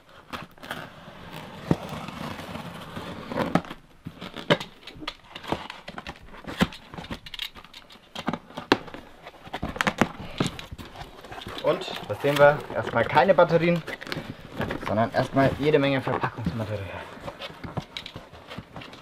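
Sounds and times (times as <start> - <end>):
cardboard rustling and knocking: 0.3 - 19.0.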